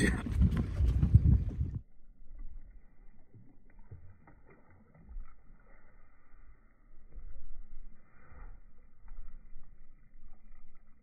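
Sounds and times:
wind rumble on microphone: 0.0 - 2.8
water lapping against boat: 3.0 - 11.0.

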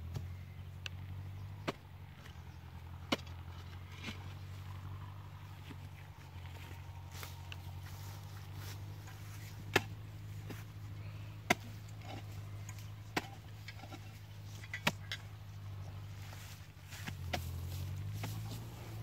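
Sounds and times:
steady low hum: 0.0 - 19.0
hoe chopping into soil: 1.6 - 4.5, 9.0 - 10.7, 11.4 - 15.3, 16.3 - 19.0.

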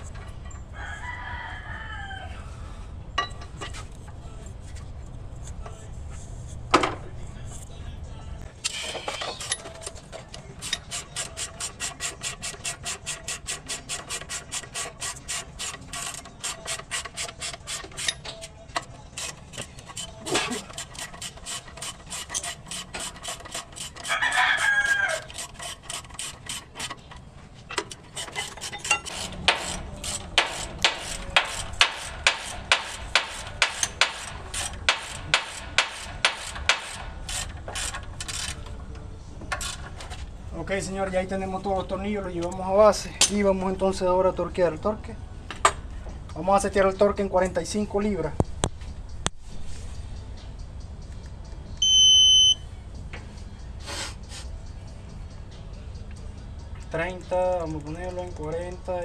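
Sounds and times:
ratchet wrench clicking: 8.6 - 27.2, 27.8 - 38.7.

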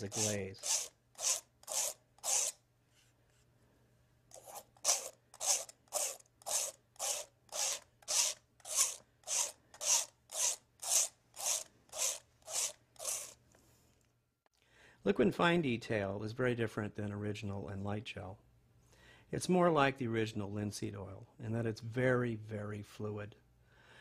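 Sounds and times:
paintbrush scrubbing on canvas: 0.0 - 2.6, 4.3 - 13.4.

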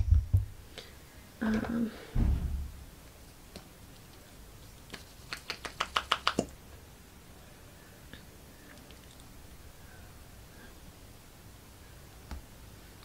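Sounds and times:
low bump: 2.2 - 2.9.

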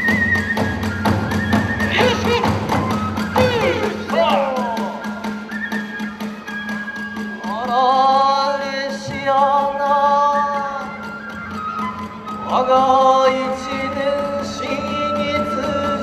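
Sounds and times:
percussion strikes: 0.0 - 9.6
person singing held phrases: 3.4 - 5.1.

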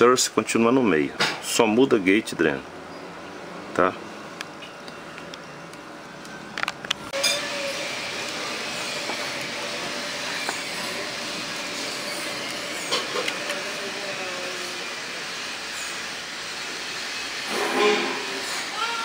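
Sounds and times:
steady hissing noise: 7.1 - 19.0.

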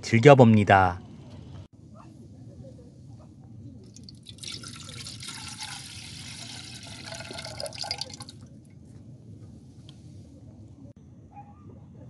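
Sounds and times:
water pouring into a pot: 3.9 - 8.4.

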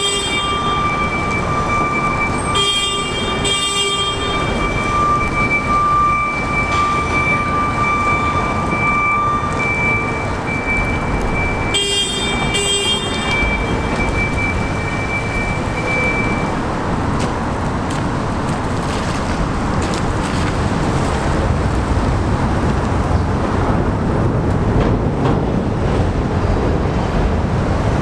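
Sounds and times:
horn blasts: 0.0 - 10.1, 11.6 - 14.2.

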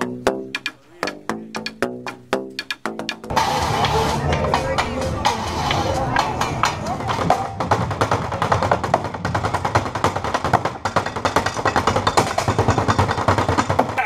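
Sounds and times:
fast drumming on plastic bin: 6.1 - 14.0.

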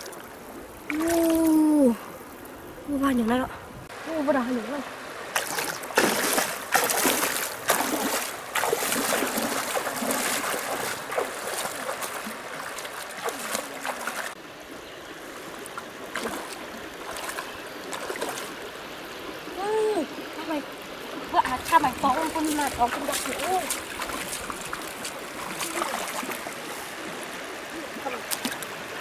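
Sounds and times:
water splashing and sloshing: 0.0 - 14.4, 15.2 - 29.0
water trickling: 0.0 - 14.4, 15.2 - 29.0.

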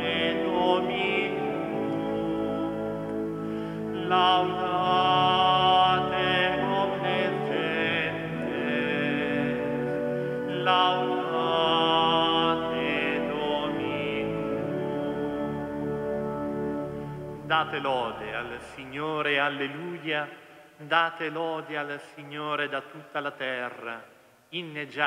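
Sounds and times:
held organ-like notes: 0.0 - 19.8
voices singing a hymn: 0.0 - 20.2.

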